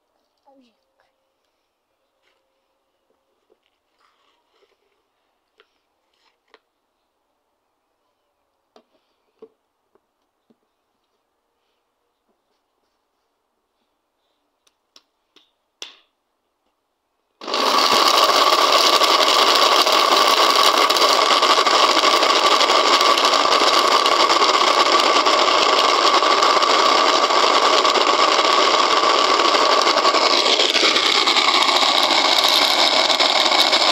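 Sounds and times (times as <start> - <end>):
blender grinding nuts: 17.4 - 33.9.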